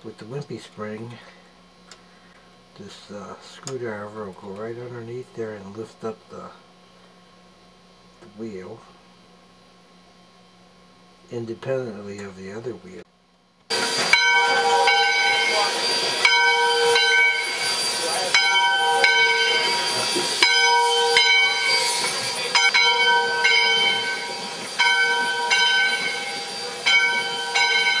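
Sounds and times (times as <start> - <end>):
locomotive bell ringing: 13.7 - 28.0
steam hissing: 13.7 - 28.0.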